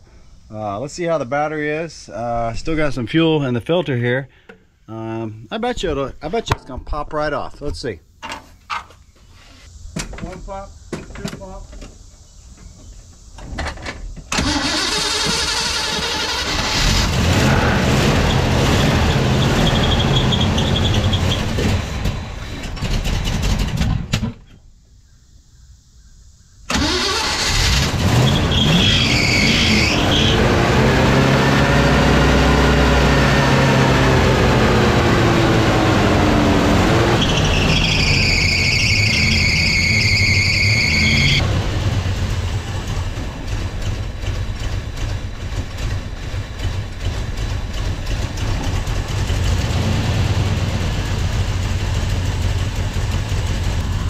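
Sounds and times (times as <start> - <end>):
truck engine starting and idling: 14.2 - 24.3, 26.7 - 54.0
high squeal: 18.3 - 21.7, 28.2 - 30.6, 36.9 - 41.4.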